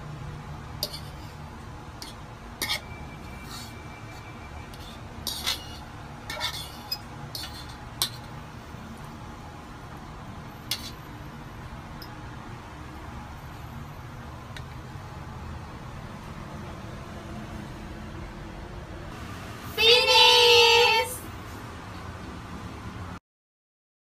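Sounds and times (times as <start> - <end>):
fork clinking on ceramic bowl: 0.8 - 1.3, 2.0 - 3.8, 4.7 - 8.3.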